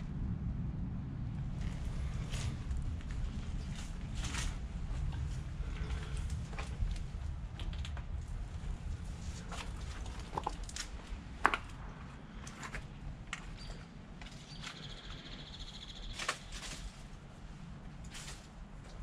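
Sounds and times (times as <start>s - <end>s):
low rumble: 0.0s - 15.8s
footsteps crunching on stones: 1.5s - 14.8s.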